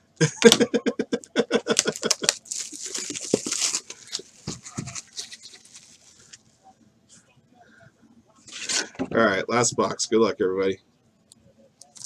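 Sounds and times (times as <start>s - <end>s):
man laughing: 0.2s - 2.4s.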